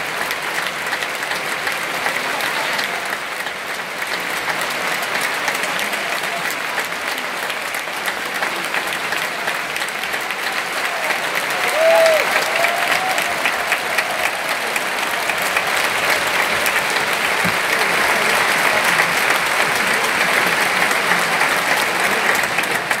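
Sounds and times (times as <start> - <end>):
audience applauding: 0.0 - 23.0
person cheering: 11.5 - 14.7.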